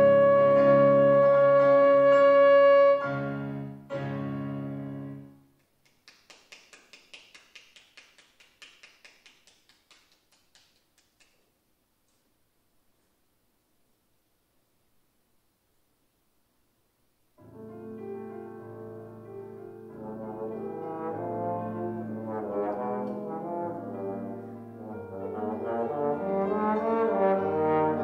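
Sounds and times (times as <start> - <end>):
trombone high note: 0.0 - 3.6
piano chords: 0.0 - 5.5, 17.4 - 28.0
faint clapping: 5.6 - 11.5.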